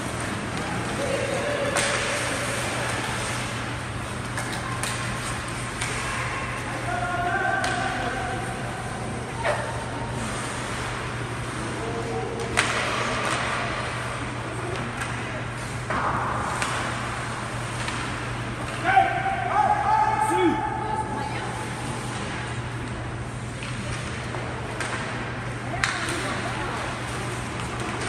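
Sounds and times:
sticks and puck clacking: 0:00.0 - 0:08.6, 0:09.4 - 0:18.8, 0:22.0 - 0:28.0
steady low hum: 0:00.0 - 0:28.0
players shouting: 0:00.8 - 0:02.9.

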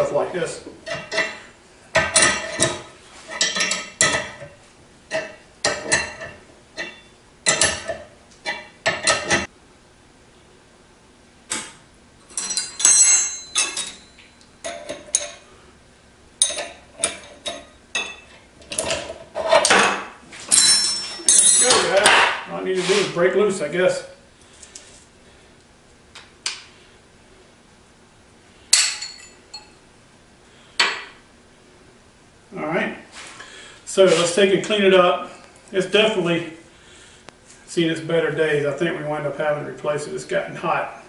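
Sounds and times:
steel tools clanking on metal: 0:00.8 - 0:04.5, 0:05.1 - 0:09.5, 0:12.3 - 0:15.5, 0:16.4 - 0:22.2, 0:28.7 - 0:29.8.

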